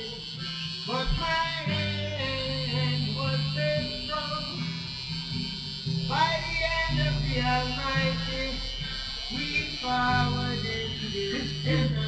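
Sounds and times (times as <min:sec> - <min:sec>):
song with singing voice: 0:00.9 - 0:04.6, 0:06.1 - 0:12.0.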